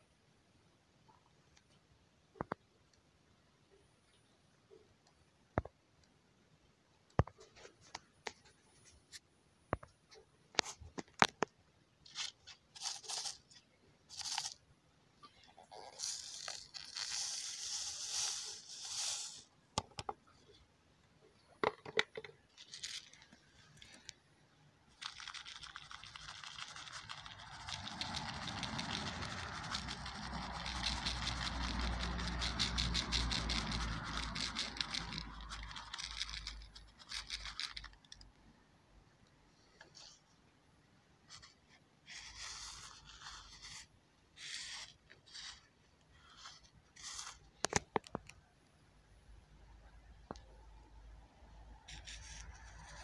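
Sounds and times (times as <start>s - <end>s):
grains clicking and rattling: 12.1s - 14.6s, 15.2s - 20.1s, 21.7s - 24.1s, 24.9s - 38.3s
powder grains rattling in plastic sieve: 12.1s - 14.6s, 15.7s - 19.5s, 21.8s - 23.3s, 24.9s - 38.2s, 46.3s - 47.8s.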